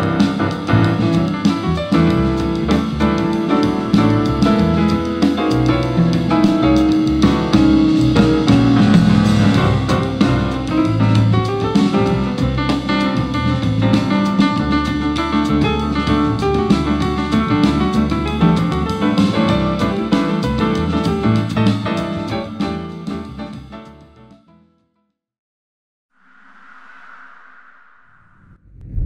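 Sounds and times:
upright bass: 0.0s - 22.6s
drum kit: 0.0s - 23.8s
grand piano: 0.0s - 24.1s.

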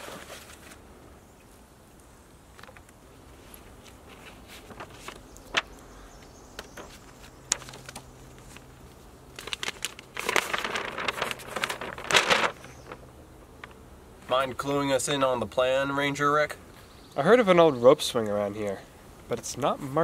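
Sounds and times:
paper map crinkling and rustling: 0.0s - 0.9s, 2.5s - 14.8s.

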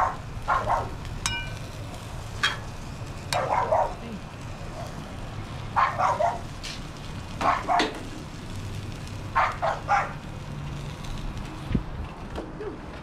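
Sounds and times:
dog barking: 0.0s - 1.0s, 3.4s - 4.1s, 5.8s - 6.5s, 7.4s - 8.0s, 9.4s - 10.2s.

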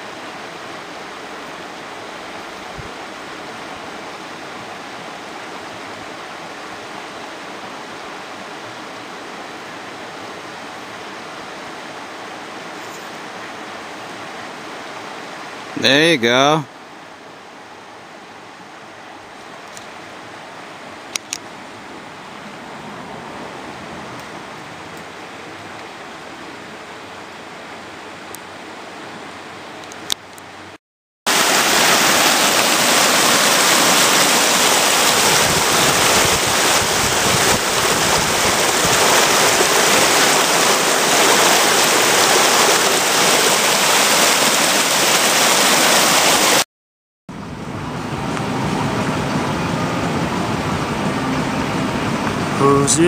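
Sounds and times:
river water rushing over rocks: 0.0s - 46.6s
car driving hum: 47.3s - 53.0s.

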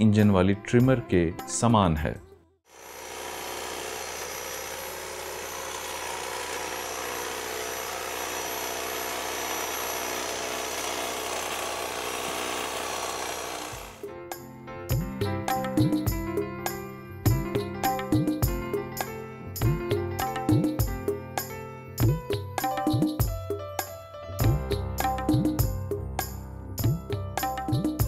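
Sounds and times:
music: 0.0s - 2.6s, 14.0s - 28.0s
electric hedge trimmer running: 2.7s - 14.0s.

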